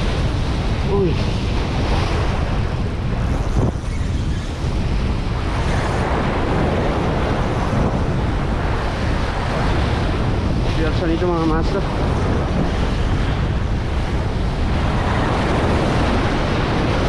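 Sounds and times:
sea waves on rocky shore: 0.0s - 17.0s
wind buffeting microphone: 0.0s - 17.0s.

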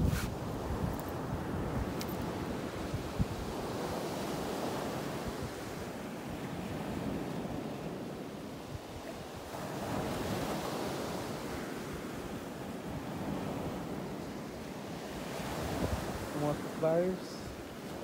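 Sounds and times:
wind buffeting microphone: 0.0s - 16.4s
surf washing on shore: 0.0s - 18.0s.

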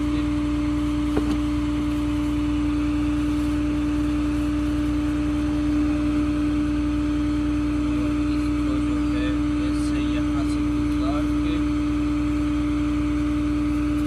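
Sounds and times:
truck engine idling: 0.0s - 14.0s.

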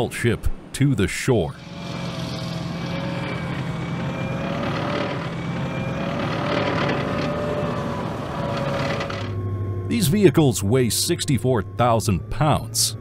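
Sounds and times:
steady whine: 0.0s - 13.0s
vehicle engine running under load: 1.6s - 10.3s.

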